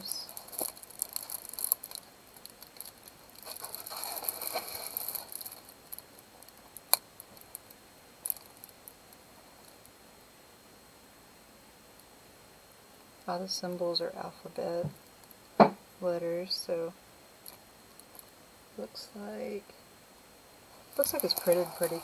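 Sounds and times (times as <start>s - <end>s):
plastic film crinkling: 0.0s - 9.0s, 20.7s - 22.0s.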